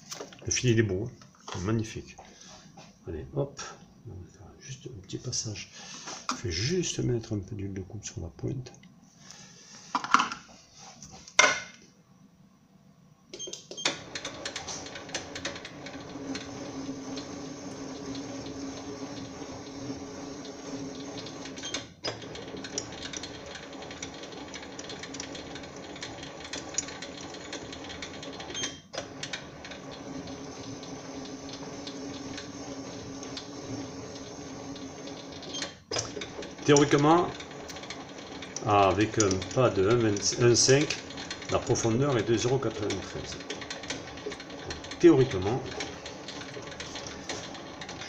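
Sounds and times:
lathe motor humming: 14.0 - 48.0.

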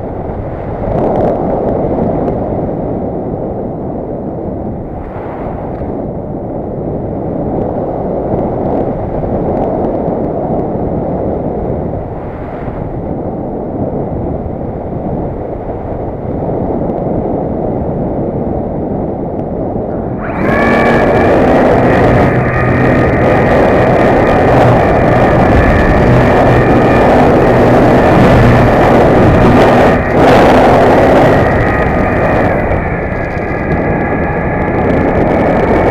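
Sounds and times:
wind rushing over camera: 0.0 - 35.9
propeller motor whine: 19.8 - 35.9.

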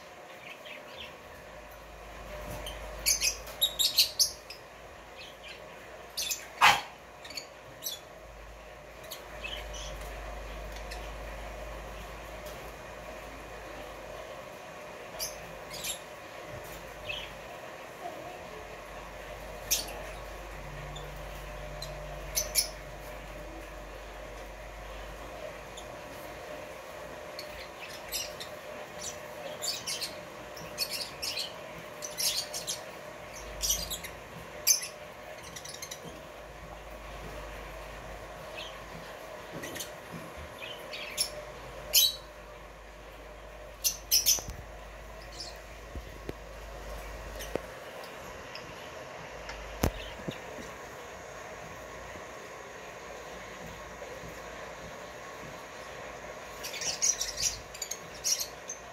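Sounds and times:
low steady hum: 0.0 - 58.9
lovebirds squeaky chirps: 2.3 - 4.7, 20.9 - 23.2, 43.8 - 45.7
lovebird chirping: 43.8 - 45.7.

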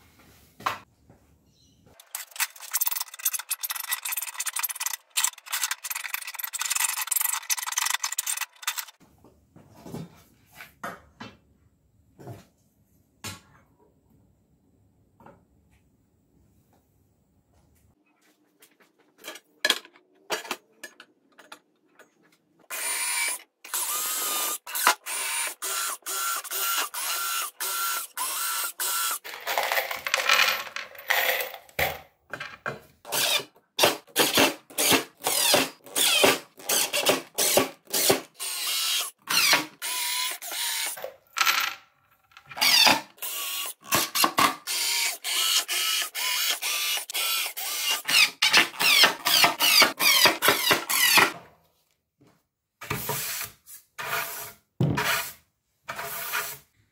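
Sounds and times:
cordless drill whining: 22.7 - 29.2, 34.8 - 41.0, 42.6 - 51.3.

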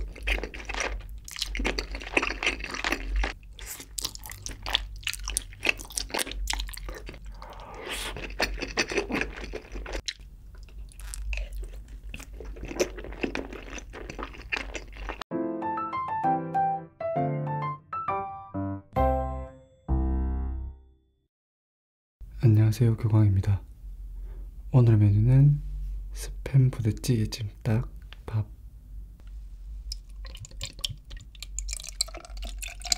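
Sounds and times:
man chewing wetly: 0.0 - 15.2, 29.9 - 32.9
piano music: 15.3 - 21.2.

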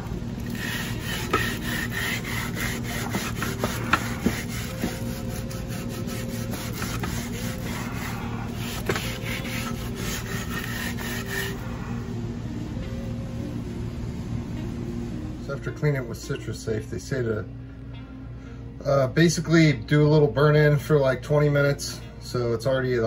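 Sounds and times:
low hum: 0.0 - 18.8
rubbing and scraping strokes: 0.5 - 11.8.

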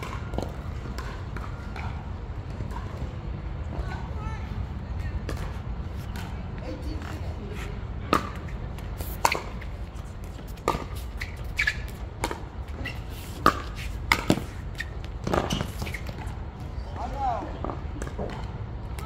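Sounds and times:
ball bouncing on hard court: 8.0 - 8.5, 10.2 - 12.5, 13.4 - 16.7.

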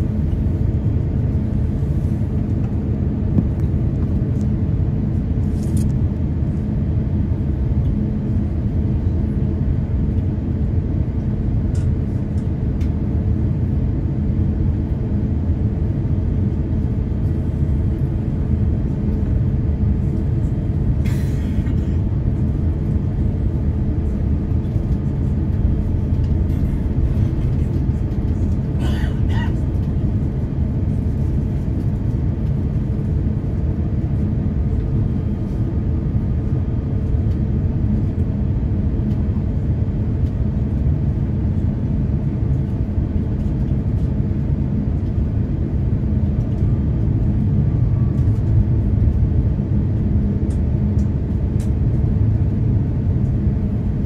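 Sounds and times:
aircraft cabin rumble: 0.0 - 54.0.

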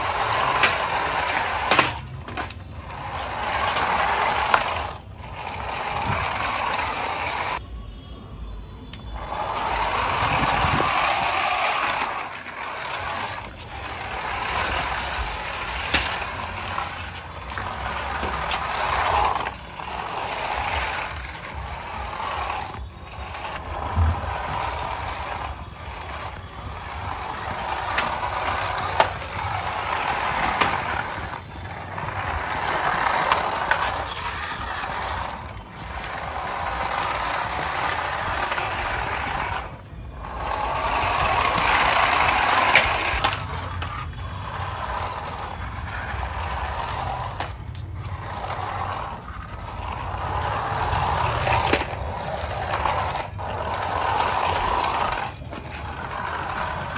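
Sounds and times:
toy cars rolling on concrete: 0.0 - 7.6, 8.8 - 56.9.

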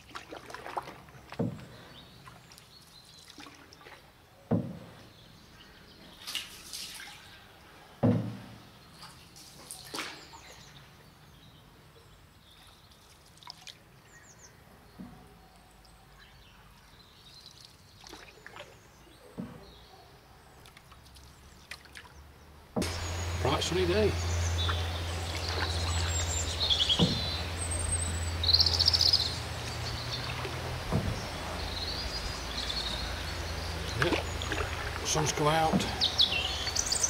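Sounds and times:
water dripping off paddle: 0.0 - 4.1, 12.6 - 13.8, 20.6 - 22.2, 22.8 - 37.0
paddle pulling through water: 0.0 - 5.2, 20.6 - 37.0
sharp knocks: 4.5 - 4.9, 8.0 - 8.5, 26.9 - 27.4, 30.8 - 31.6, 35.6 - 36.2
faint bird chirps: 22.9 - 30.4.

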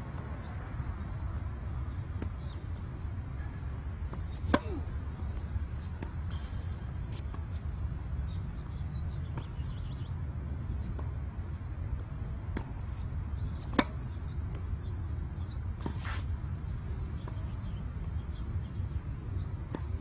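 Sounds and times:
tennis ball pop: 4.3 - 4.8
scuffing hiss: 15.8 - 16.4.

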